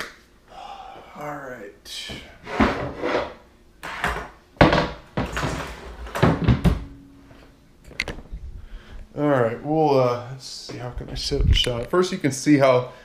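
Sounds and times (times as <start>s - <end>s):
kitchen knocks and bangs: 3.9s - 7.0s.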